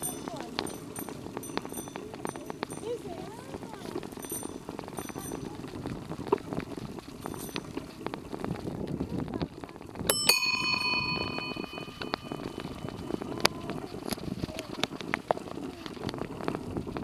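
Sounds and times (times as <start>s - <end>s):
bicycle bell ringing: 0.0s - 6.0s, 7.1s - 8.0s, 10.1s - 14.5s
bicycles rolling on gravel: 0.0s - 17.0s.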